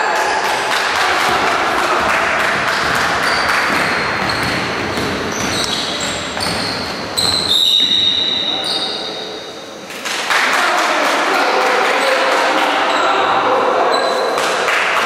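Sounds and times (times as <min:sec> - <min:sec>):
sneakers squeaking: 0:01.3 - 0:09.8, 0:12.8 - 0:14.4
basketball dribbling on wooden floor: 0:02.0 - 0:07.5.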